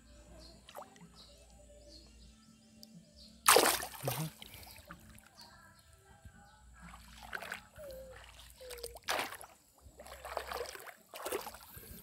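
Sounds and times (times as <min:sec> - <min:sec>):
loud splash in pond water: 0:03.4 - 0:04.5, 0:08.4 - 0:11.6.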